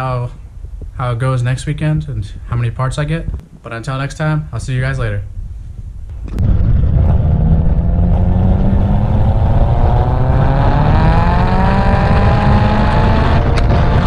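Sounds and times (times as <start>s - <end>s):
car engine accelerating hard: 6.3s - 14.0s.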